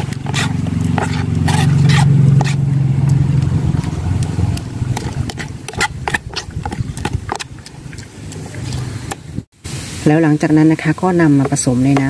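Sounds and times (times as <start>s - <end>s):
metal spoon scraping plastic jug: 0.0s - 2.6s, 3.6s - 9.2s
steady engine hum: 0.0s - 9.5s.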